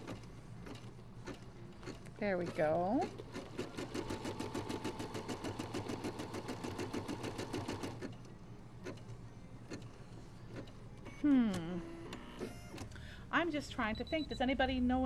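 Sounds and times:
embroidery machine stitching: 0.0 - 8.2.

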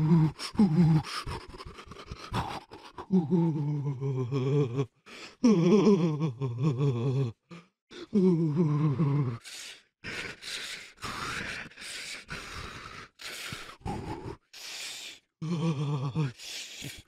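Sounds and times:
stuttering gasps: 0.0 - 3.9, 8.9 - 17.0
person groaning with quavering pitch: 0.0 - 9.4, 13.6 - 14.7, 15.4 - 17.0.

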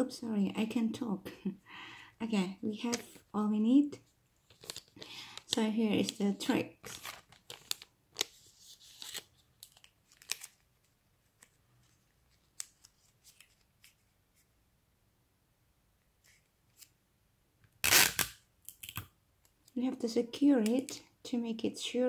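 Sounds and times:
plastic sheet crinkling: 4.4 - 14.0.

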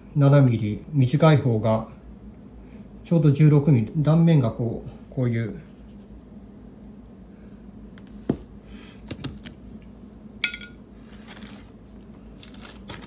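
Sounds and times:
glass clink ringing: 10.4 - 10.8
plastic bag rustling: 11.1 - 13.0.

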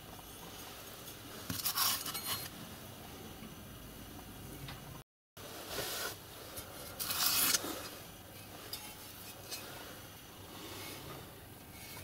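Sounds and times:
metal rings scraping and clinking: 1.0 - 2.5, 6.5 - 10.0, 10.7 - 12.0.

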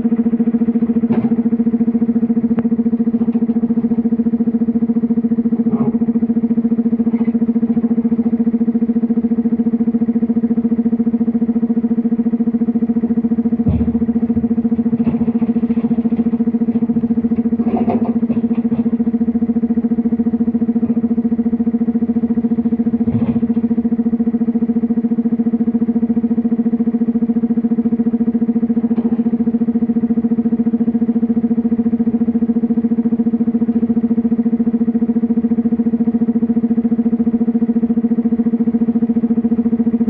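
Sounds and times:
diesel excavator engine humming: 0.0 - 40.0
heavy thumps: 13.6 - 16.9
rocks clattering into truck body: 13.6 - 19.0.

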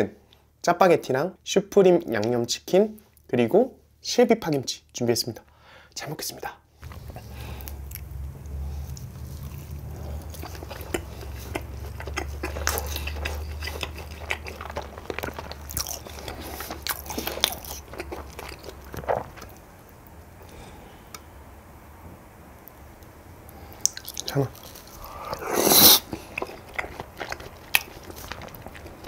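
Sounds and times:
low steady hum: 0.0 - 29.0
person chewing: 6.8 - 21.2, 23.5 - 29.0.

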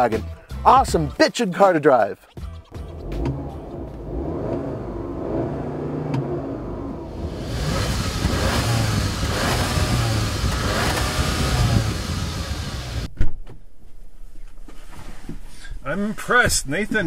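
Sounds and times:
car engine revving: 2.7 - 13.1.

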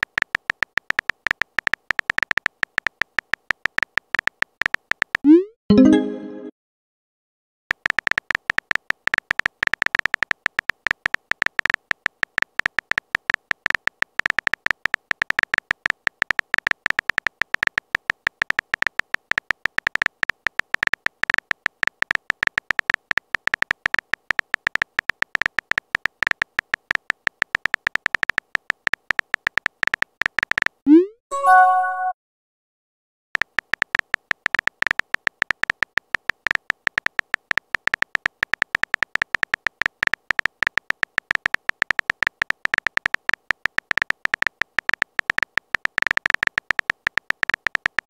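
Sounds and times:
keyboard typing clicks: 0.0 - 6.3, 7.7 - 32.1, 33.4 - 48.0.

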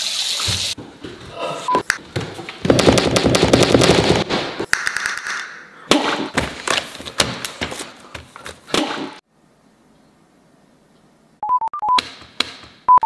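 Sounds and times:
sharp cracks and bangs: 2.7 - 6.4.

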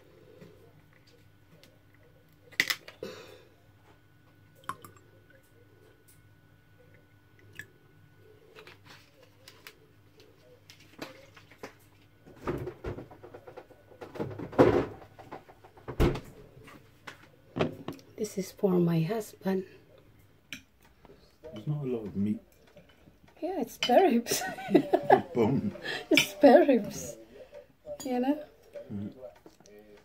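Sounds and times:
plastic bottle cap cracking open: 2.5 - 3.0.

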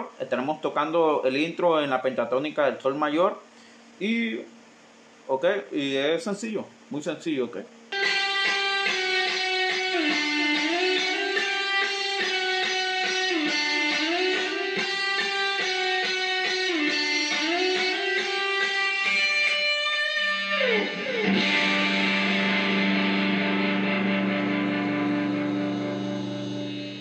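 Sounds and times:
electric guitar melody: 7.9 - 27.0
guitar slide: 7.9 - 27.0.

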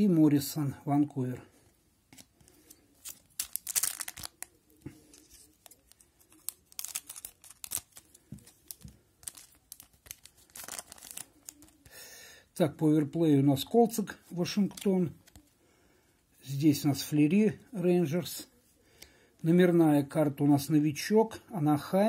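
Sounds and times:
foil pack tearing and crinkling: 3.1 - 4.5, 6.4 - 11.8.

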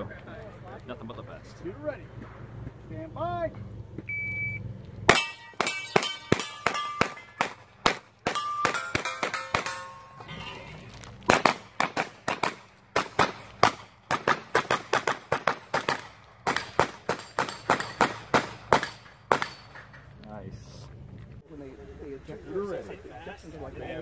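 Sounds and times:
carbine gunshots: 5.1 - 10.2, 11.2 - 19.8
steel plates ringing: 5.1 - 10.9, 16.6 - 20.1.

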